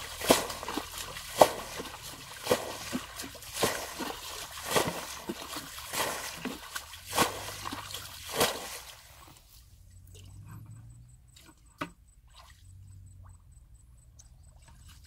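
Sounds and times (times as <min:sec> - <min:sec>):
water trickling: 0:00.0 - 0:09.4
bucket sloshing and splashing water: 0:00.0 - 0:10.4, 0:11.3 - 0:13.3.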